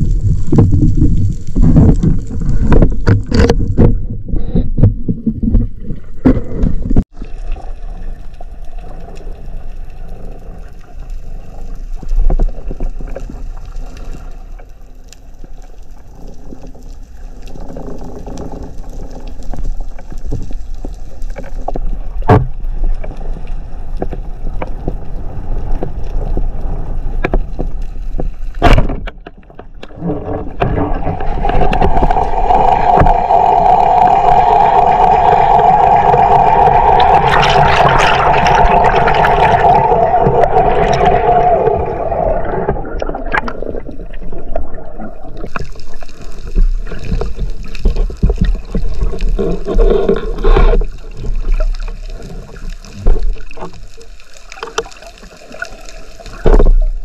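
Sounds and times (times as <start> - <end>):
underwater watery hum: 0.0 - 57.0.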